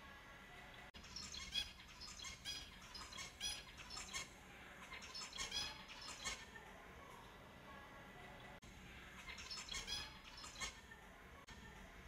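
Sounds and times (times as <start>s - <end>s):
finches chirping: 0.9s - 6.6s, 8.3s - 10.8s.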